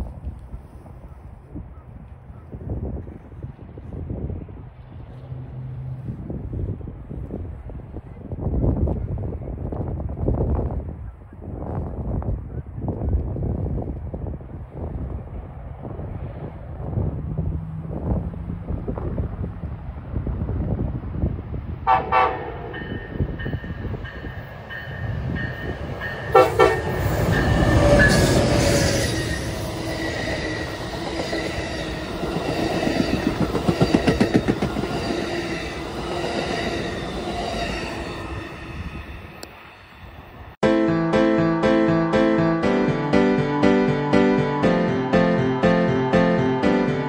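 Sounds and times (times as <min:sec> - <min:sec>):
train cars rumbling past: 0:02.6 - 0:10.9, 0:14.3 - 0:40.6
locomotive horn: 0:21.8 - 0:22.9, 0:26.3 - 0:32.0
wheels clicking over rail joints: 0:30.6 - 0:37.2.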